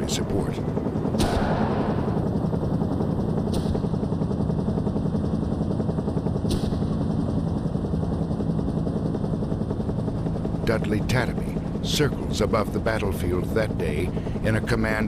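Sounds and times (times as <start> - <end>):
helicopter rotor chop: 0.0 - 15.0
sharp cracks: 1.2 - 2.0
rapid gunfire: 1.2 - 2.2.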